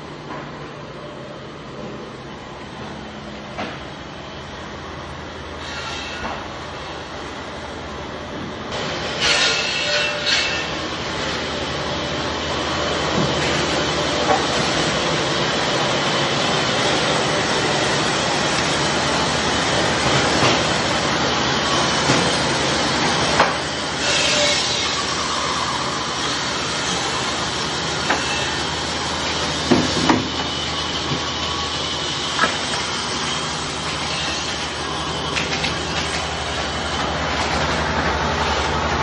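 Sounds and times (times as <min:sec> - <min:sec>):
band saw cutting wood: 0:09.0 - 0:11.5, 0:13.2 - 0:39.0.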